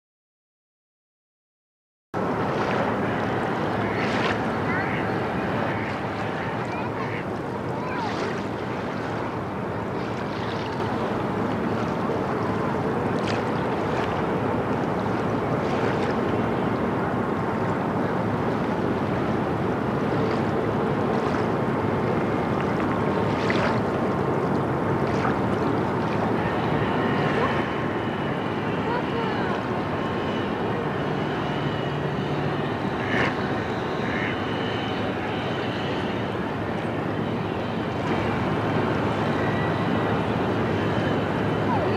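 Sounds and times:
ship diesel engine rumble: 2.2s - 41.9s
water wash: 2.2s - 41.9s.

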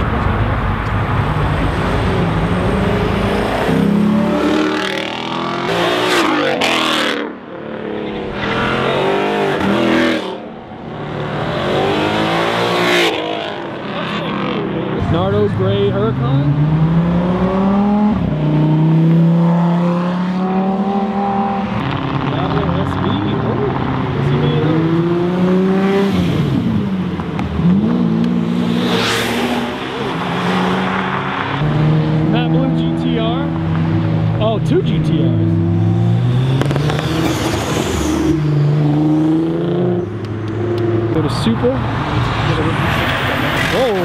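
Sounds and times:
car engine revving: 0.0s - 44.0s
car accelerating past: 27.6s - 33.0s.

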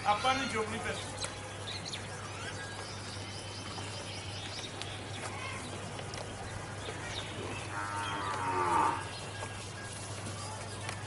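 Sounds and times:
cow mooing: 7.7s - 9.1s.

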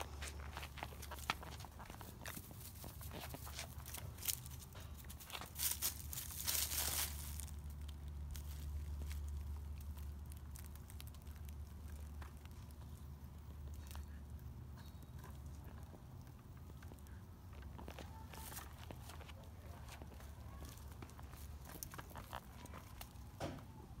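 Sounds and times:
dog rustling in dry leaves: 0.0s - 9.6s
small crackles in leaves: 0.0s - 23.9s
low steady rumble: 0.0s - 24.0s.

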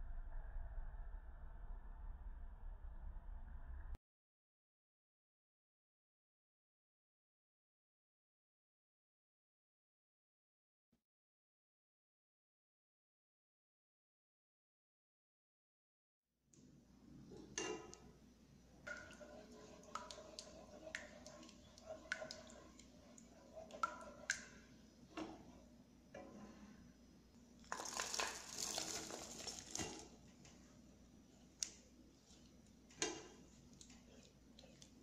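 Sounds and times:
spatula scraping metal saucepan: 18.9s - 24.6s.

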